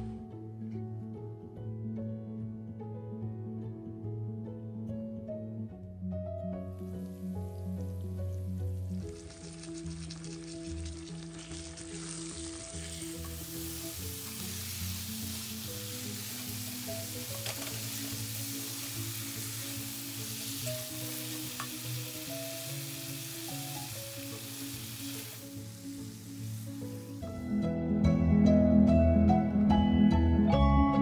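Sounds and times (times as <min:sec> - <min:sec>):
soft background music: 0:00.0 - 0:31.0
food sizzling in oil: 0:08.9 - 0:27.4.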